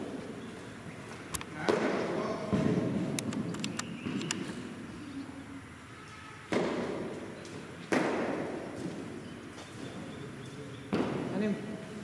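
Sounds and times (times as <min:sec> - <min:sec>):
cricket ball knocks with echo: 0:01.7 - 0:03.1, 0:06.5 - 0:07.1, 0:07.9 - 0:08.7, 0:10.9 - 0:11.3.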